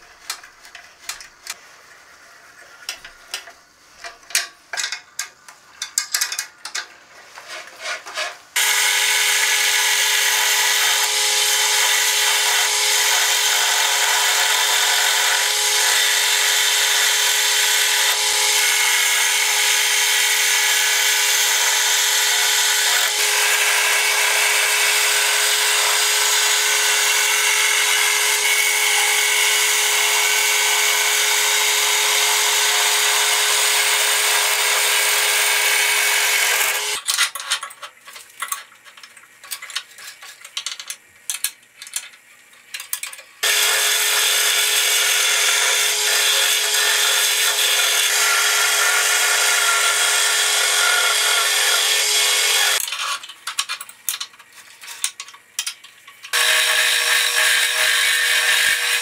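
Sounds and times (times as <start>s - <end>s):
chisel cutting wood shavings: 7.5s - 37.0s, 43.4s - 53.2s, 56.3s - 59.0s
wood lathe humming whine: 8.6s - 37.0s, 43.4s - 52.8s, 56.3s - 59.0s.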